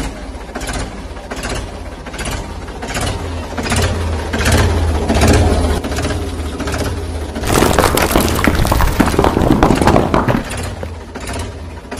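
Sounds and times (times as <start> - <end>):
rocks clattering and splashing: 7.4 - 11.0.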